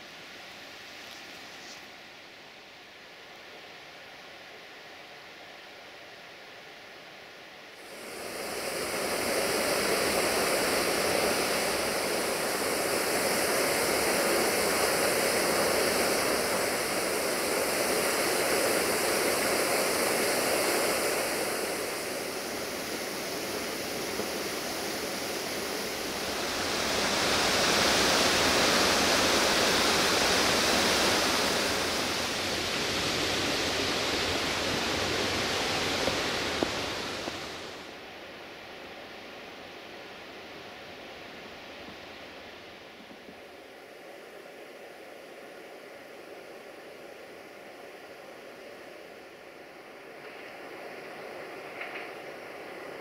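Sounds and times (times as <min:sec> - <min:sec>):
rushing water: 0:07.8 - 0:38.0.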